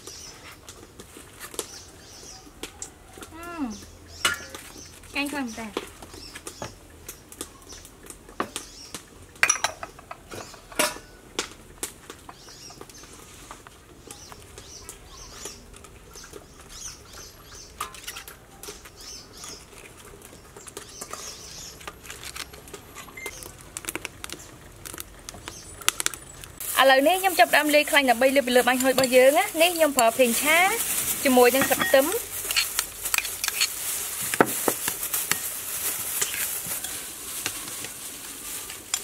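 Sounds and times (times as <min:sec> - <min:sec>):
lettuce leaves rustling: 0:12.0 - 0:39.0.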